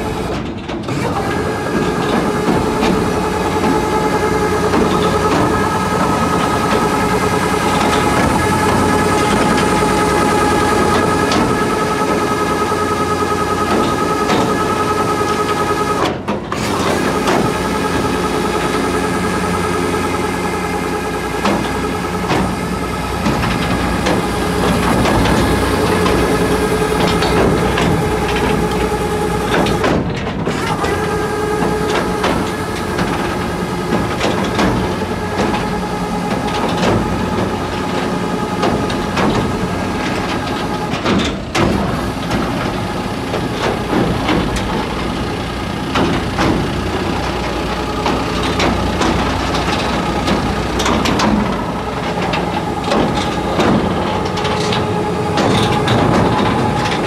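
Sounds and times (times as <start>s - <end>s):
feed wagon unloading mechanism: 0.0s - 57.0s
tractor engine running: 0.0s - 57.0s.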